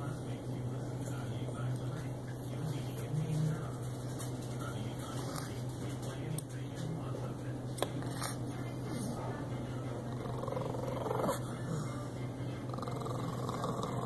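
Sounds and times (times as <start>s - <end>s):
steady low hum: 0.0s - 14.0s
dog noisy breathing: 10.0s - 12.0s, 12.7s - 14.0s.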